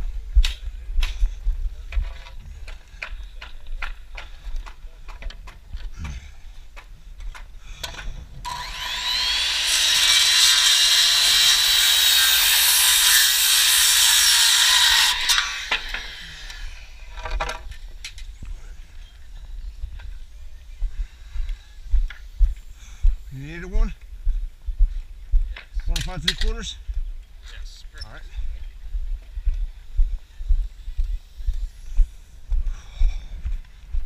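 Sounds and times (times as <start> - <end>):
power saw cutting wood: 8.4 - 16.9.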